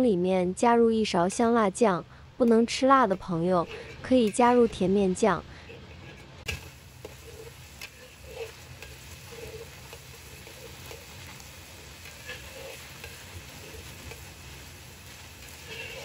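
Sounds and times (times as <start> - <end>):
metal spatula scraping a wok: 3.4 - 5.0, 5.6 - 16.0
oil sizzling in a wok: 5.5 - 16.0.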